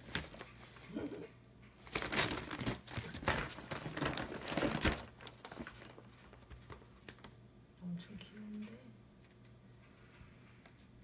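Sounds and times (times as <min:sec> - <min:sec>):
paper bag crinkling: 0:01.8 - 0:07.4.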